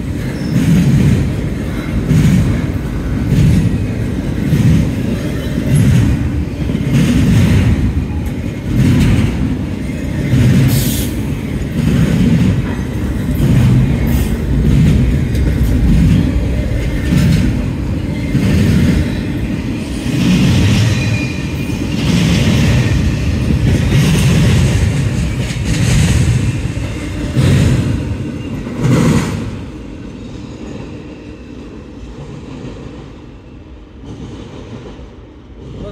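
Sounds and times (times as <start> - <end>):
freight train rumbling past: 0.0 - 35.9.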